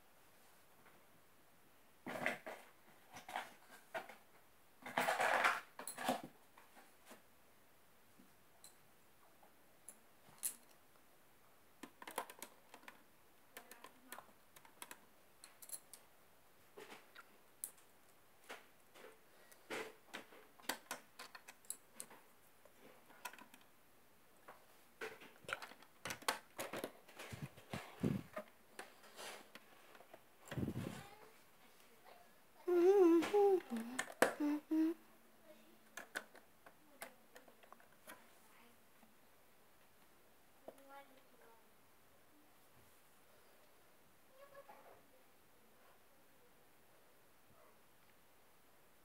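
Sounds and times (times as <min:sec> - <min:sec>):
plastic bricks clicking: 0:36.0 - 0:36.4.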